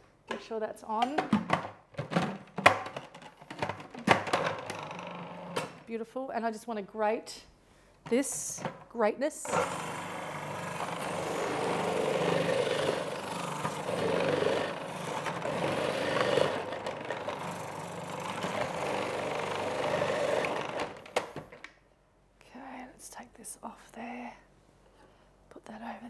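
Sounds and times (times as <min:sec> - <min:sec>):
food processor motor shredding: 0:09.4 - 0:21.5.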